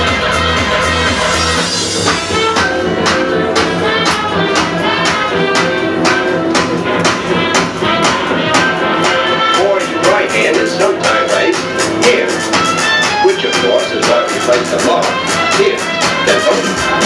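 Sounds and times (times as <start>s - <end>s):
loud dance music: 0.0s - 17.0s.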